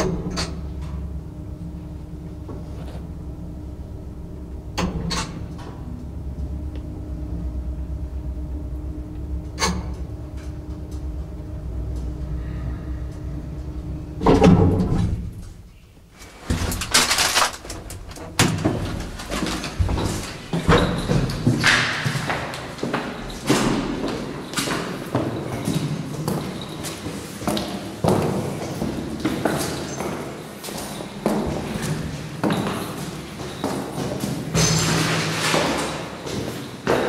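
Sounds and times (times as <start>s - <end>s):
lift doors rattling and banging: 0.0s - 15.6s, 16.2s - 27.2s, 31.0s - 37.0s
lift car humming: 0.0s - 23.3s
lift stopping with a jolt: 16.2s - 22.0s.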